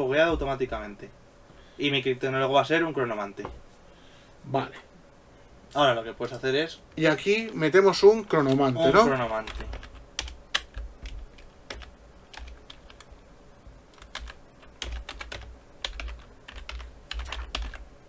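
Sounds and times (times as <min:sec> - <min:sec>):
computer keyboard typing: 0:08.2 - 0:13.1, 0:13.9 - 0:17.9.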